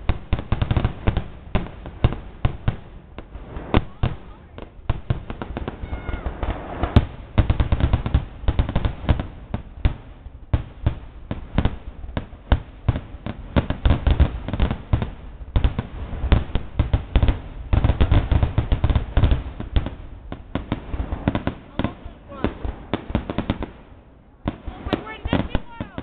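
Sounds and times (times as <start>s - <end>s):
fireworks bangs and crackles: 0.0s - 26.0s.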